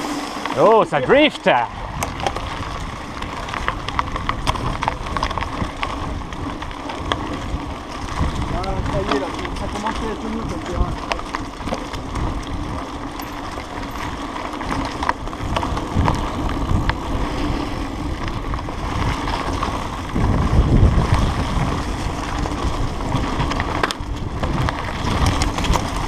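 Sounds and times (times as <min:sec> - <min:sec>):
bike clicks and rattles: 0:00.0 - 0:26.0
tyres rolling on dirt: 0:00.0 - 0:26.0
wind rumbling on microphone: 0:00.0 - 0:26.0.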